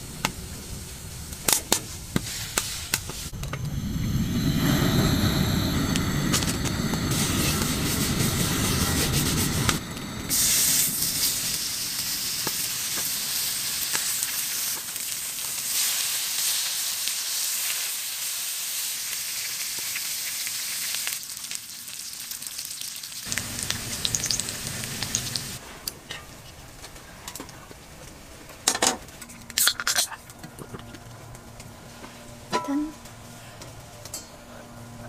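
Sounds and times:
low steady rush: 0:00.0 - 0:14.3
pork sizzling on a griddle: 0:10.3 - 0:25.6.

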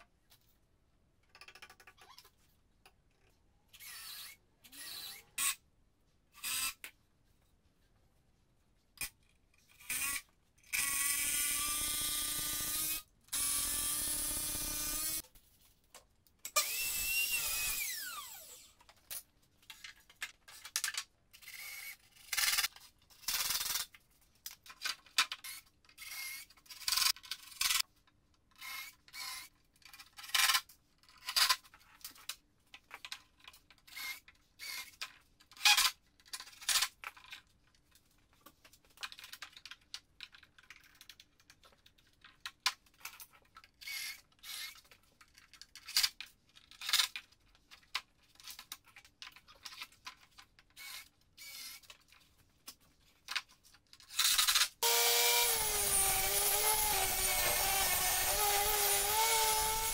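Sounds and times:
power tool whining: 0:54.8 - 0:59.9.

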